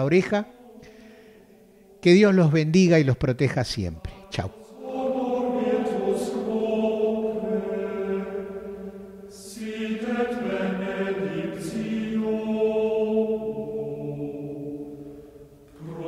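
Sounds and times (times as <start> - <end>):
voices singing slow chant: 0.1 - 2.1, 3.8 - 16.0.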